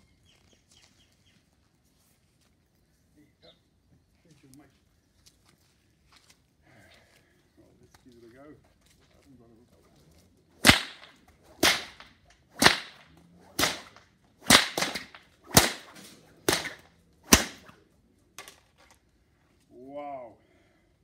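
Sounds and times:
whip cracking: 0:10.6 - 0:17.8.

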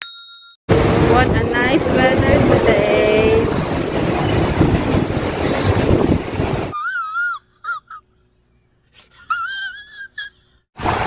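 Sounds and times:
wind buffeting microphone: 0:00.7 - 0:06.8.

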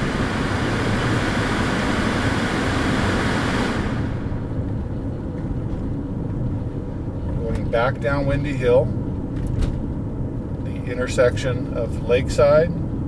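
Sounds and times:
passing cars rushing: 0:00.0 - 0:05.0.

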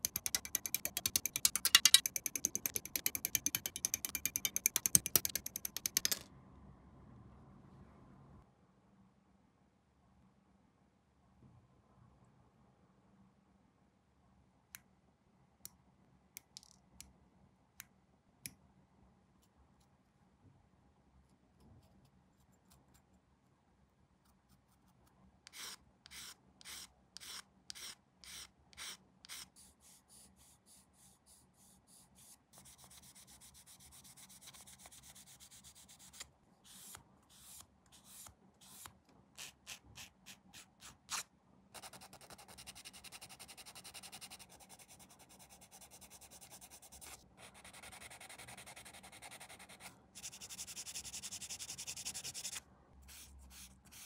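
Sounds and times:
sanding plastic: 0:41.8 - 0:54.0.

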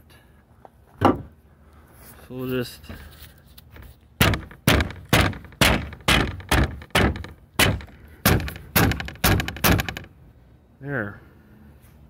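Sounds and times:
hammer striking rubber seal: 0:04.2 - 0:10.1.

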